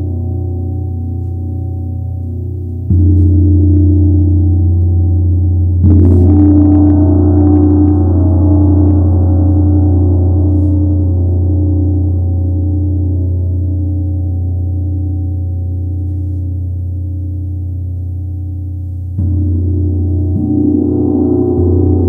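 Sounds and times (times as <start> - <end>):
gong struck with mallet: 2.9 - 10.7, 19.2 - 22.0.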